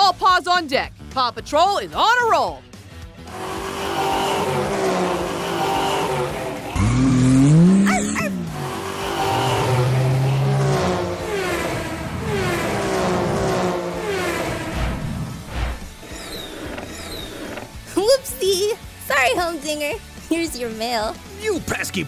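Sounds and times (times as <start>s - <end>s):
cartoon engine revving: 3.3s - 17.8s.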